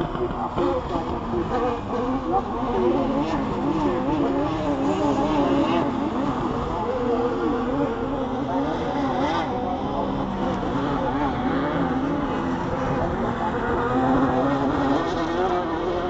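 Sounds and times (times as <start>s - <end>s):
buggy engines racing: 0.0s - 16.0s.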